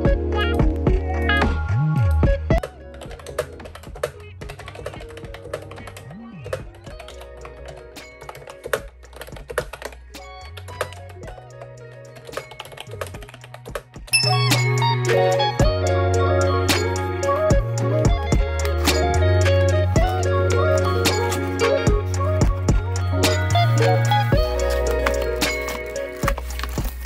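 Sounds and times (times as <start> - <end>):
soft background music: 0.0 - 27.0
keyboard typing clicks: 2.6 - 14.6.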